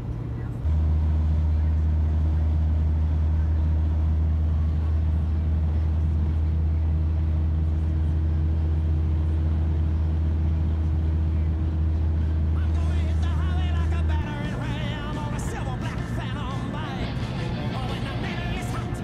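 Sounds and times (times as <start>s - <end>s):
car engine humming: 0.0s - 19.0s
road noise: 0.0s - 19.0s.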